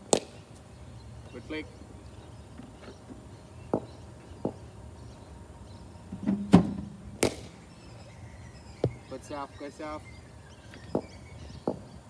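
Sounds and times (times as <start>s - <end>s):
ball cracking off bat: 0.1s - 0.4s, 7.2s - 7.6s
bowling machine hum and thump: 2.5s - 5.2s, 6.0s - 7.8s.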